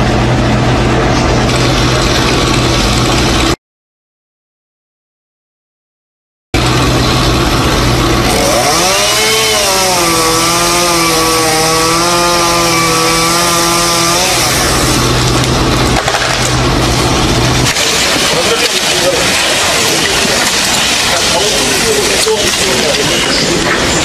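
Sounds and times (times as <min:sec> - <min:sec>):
truck engine running: 0:00.0 - 0:03.6, 0:06.6 - 0:24.0
chainsaw cutting wood: 0:06.6 - 0:23.0.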